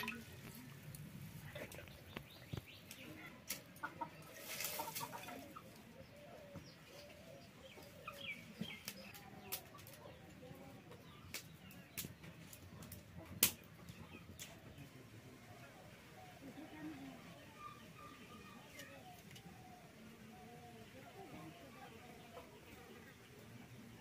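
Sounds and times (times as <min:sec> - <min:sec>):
hens clucking: 0:03.6 - 0:07.1.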